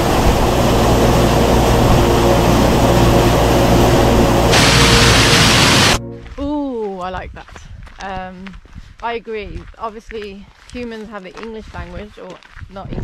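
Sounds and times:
waterfall rushing: 0:00.0 - 0:06.0.

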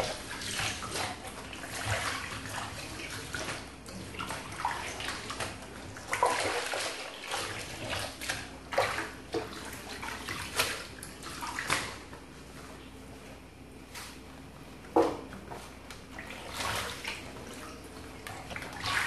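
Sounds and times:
water sloshing and splashing in sink: 0:00.0 - 0:19.0.

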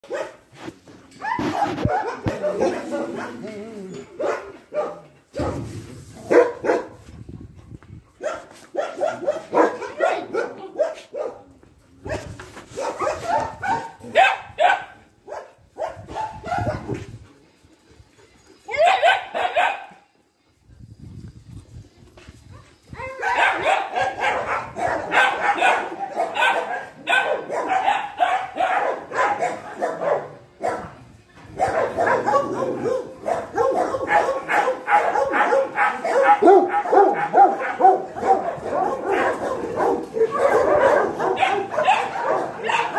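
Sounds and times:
dogs barking: 0:00.0 - 0:00.4, 0:01.2 - 0:03.5, 0:04.2 - 0:05.6, 0:06.3 - 0:07.0, 0:08.2 - 0:11.5, 0:12.8 - 0:17.0, 0:18.7 - 0:20.0, 0:23.0 - 0:42.9.

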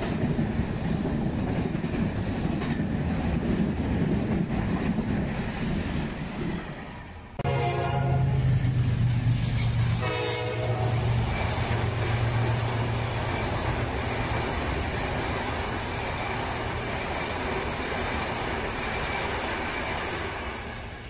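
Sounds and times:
train coaches rolling: 0:00.0 - 0:21.0
locomotive horn blast: 0:07.4 - 0:11.4.

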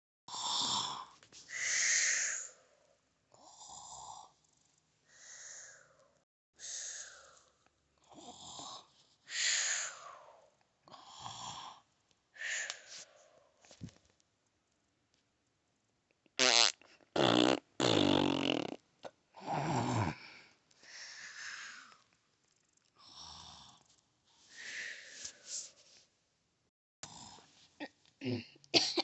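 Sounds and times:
person imitating snoring: 0:00.3 - 0:02.5, 0:10.9 - 0:11.8, 0:17.2 - 0:18.8, 0:19.4 - 0:20.3.

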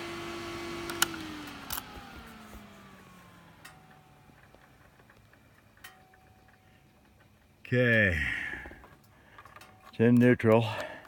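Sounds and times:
engine winding down: 0:00.0 - 0:07.2.

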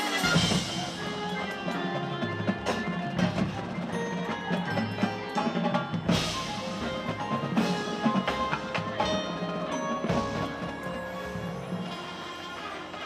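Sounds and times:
marching band playing: 0:00.0 - 0:13.0.

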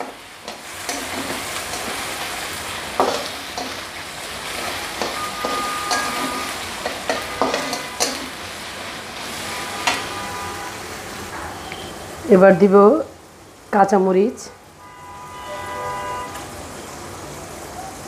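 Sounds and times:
spatula scraping and knocking wok: 0:00.0 - 0:10.4
chicken sizzling in hot oil: 0:00.0 - 0:11.3.

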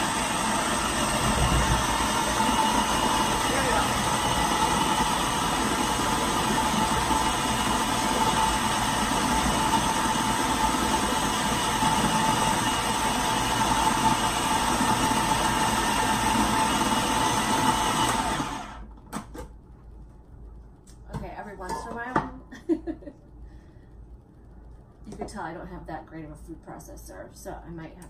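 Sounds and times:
food processor motor running: 0:00.0 - 0:18.8.

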